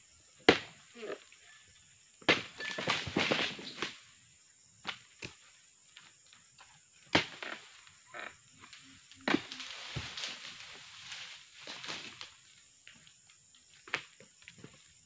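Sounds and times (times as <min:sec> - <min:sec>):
dry fronds rustling: 0:08.7 - 0:12.6
pole chisel chopping palm fronds: 0:09.2 - 0:10.3.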